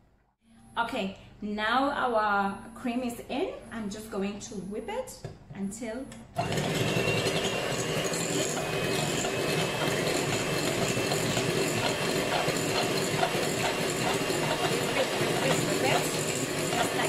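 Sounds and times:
electric hand mixer whipping cream: 6.4 - 17.0.

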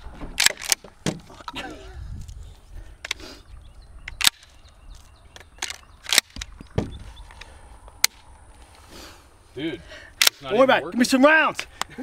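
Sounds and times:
shotgun action clicking: 0.4 - 0.9, 4.0 - 4.6, 5.3 - 6.7.

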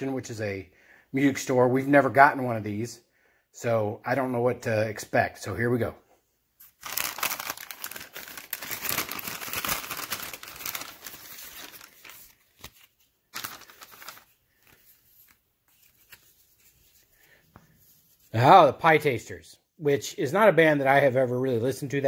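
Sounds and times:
paper bag crinkling: 6.6 - 16.8.

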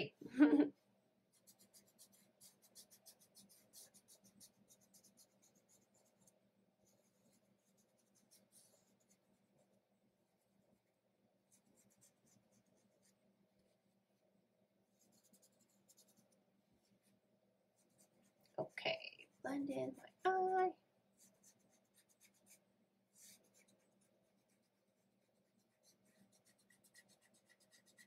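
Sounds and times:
fingertip rubbing pastel on paper: 1.3 - 9.7, 11.5 - 13.3, 14.9 - 17.2, 17.8 - 18.8, 21.1 - 28.0.

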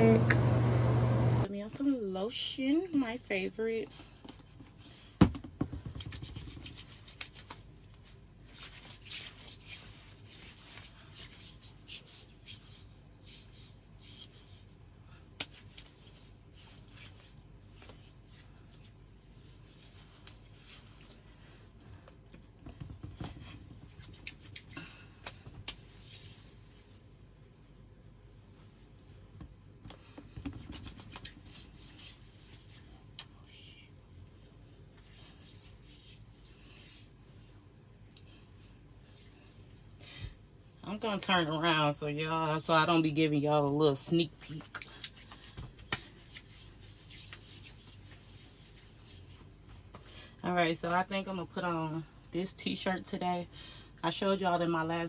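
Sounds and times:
hands rubbing skin: 6.1 - 21.4, 23.4 - 26.9, 30.6 - 33.0, 34.8 - 37.6, 44.4 - 50.0.

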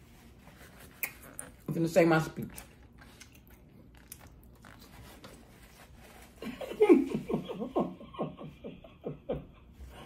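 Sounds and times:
woman laughing hard: 6.4 - 10.0.

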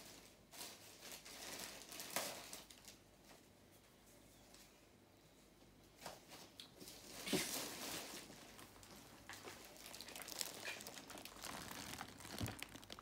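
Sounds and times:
plastic wrapping crinkling: 0.0 - 3.4, 6.8 - 13.0.

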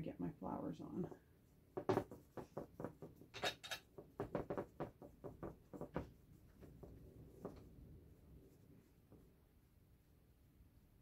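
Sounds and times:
paintbrush scrubbing on board: 4.2 - 9.1.

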